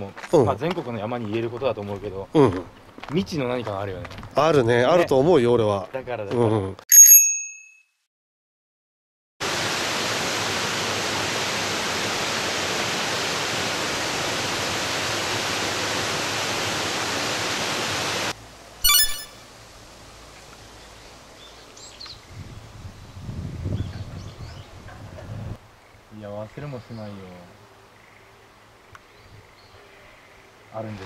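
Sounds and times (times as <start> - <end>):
stream cascading over rocks: 9.4 - 18.4
faint bird chirps: 18.8 - 19.4
short bright chime: 18.8 - 19.4.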